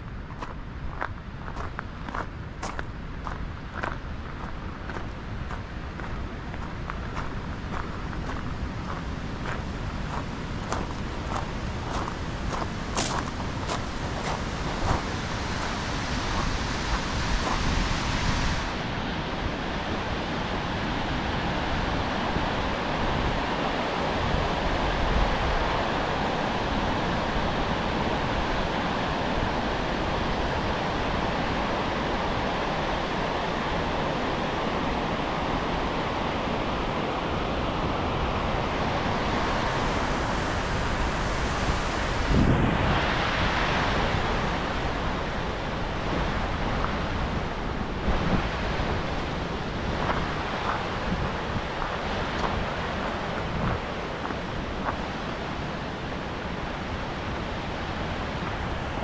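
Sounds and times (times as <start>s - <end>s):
wind buffeting microphone: 0.0s - 59.0s
waterfall rushing: 13.2s - 59.0s.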